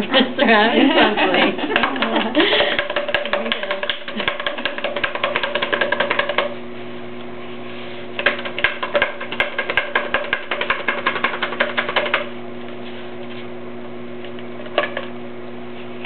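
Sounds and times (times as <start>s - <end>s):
clay knocking inside cardboard tube: 2.8s - 6.6s.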